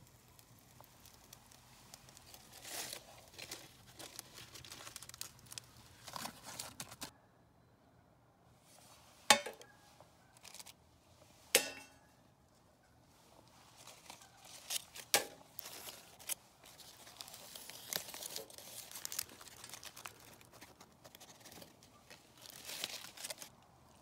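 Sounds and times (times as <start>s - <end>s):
aluminium foil crinkling: 0.0s - 7.1s, 10.3s - 10.8s, 13.4s - 24.0s
metallic clanks on metal plate: 11.6s - 12.1s.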